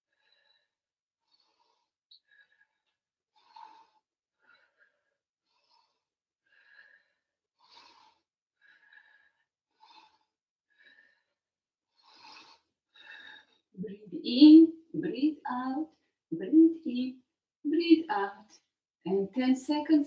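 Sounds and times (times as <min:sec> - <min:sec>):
woman breathing rhythmically: 0:00.0 - 0:13.8.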